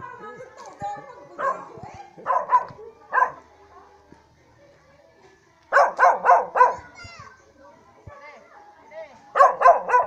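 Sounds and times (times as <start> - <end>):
dog barking: 1.4 - 3.4, 5.7 - 6.9, 9.4 - 10.0.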